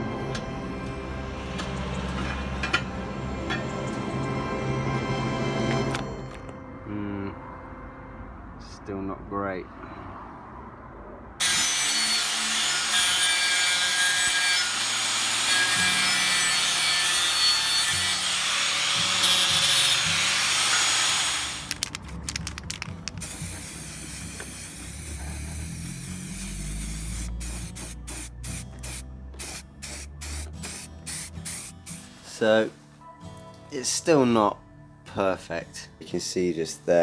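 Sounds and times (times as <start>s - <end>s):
angle grinder grinding metal: 11.4s - 21.8s.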